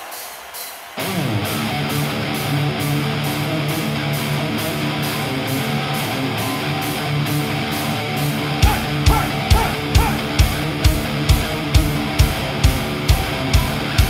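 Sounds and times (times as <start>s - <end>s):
distorted electric guitars: 0.9s - 14.0s
heavy metal band playing live: 1.0s - 14.0s
heavy drum hits: 8.6s - 13.8s.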